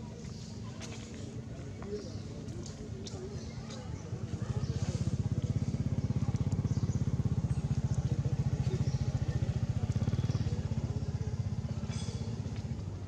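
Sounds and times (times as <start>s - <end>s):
engine running with low throb: 4.0s - 13.0s.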